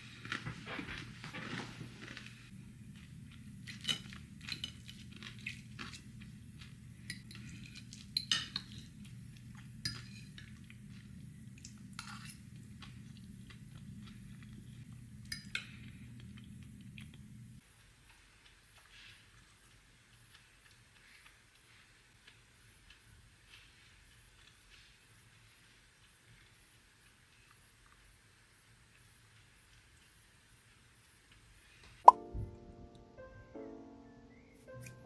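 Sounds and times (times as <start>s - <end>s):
fork clinking and scraping plate: 9.9s - 10.5s.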